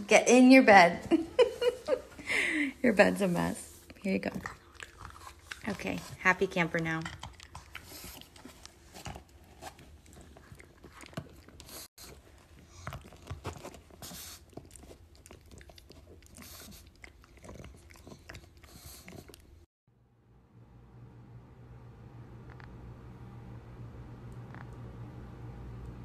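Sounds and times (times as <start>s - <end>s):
dog gnawing chew stick: 4.4s - 6.2s, 7.0s - 19.5s.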